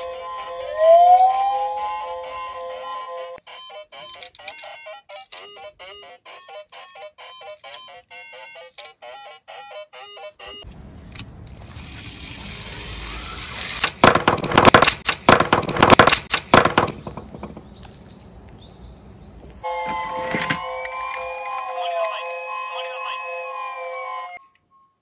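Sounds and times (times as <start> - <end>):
beeping music tune: 0.0 - 4.2, 19.6 - 25.0
toy car clattering: 4.0 - 5.6, 8.5 - 9.0, 11.1 - 18.0
toy car wheels hissing: 11.6 - 14.0.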